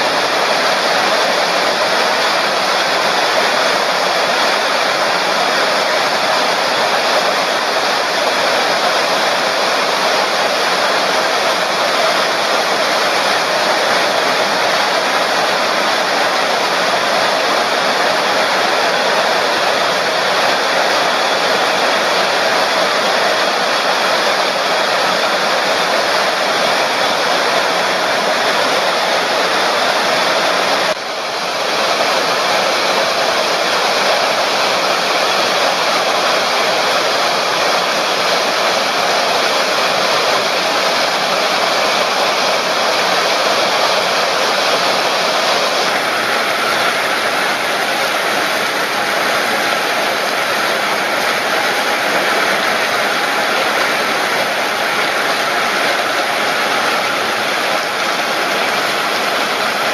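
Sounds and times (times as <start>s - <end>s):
heavy rain on standing water: 0.0s - 59.9s.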